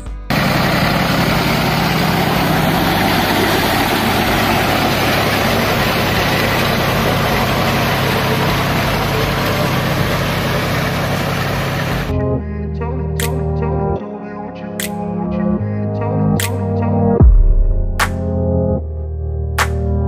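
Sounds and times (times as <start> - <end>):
rotavator churning mud and water: 0.3 - 12.1
tractor diesel engine under load: 0.3 - 12.1.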